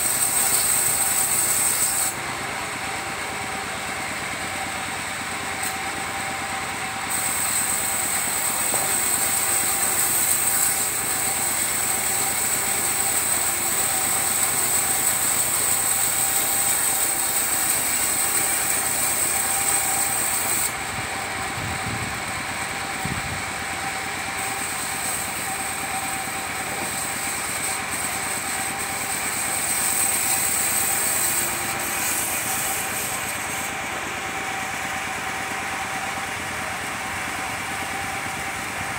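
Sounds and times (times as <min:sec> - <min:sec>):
saw blade hissing in wood: 0:00.0 - 0:21.4, 0:22.2 - 0:38.9
sawmill engine running: 0:00.0 - 0:38.9.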